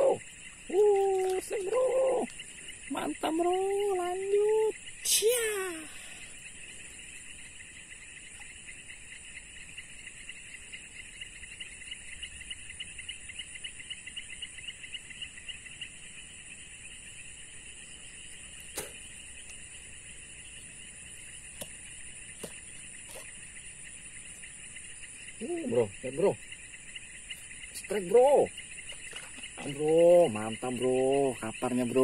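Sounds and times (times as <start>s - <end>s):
insect high-pitched whine: 0.0s - 32.0s
insect pulsing trill: 0.0s - 32.0s
sharp click: 18.7s - 19.0s.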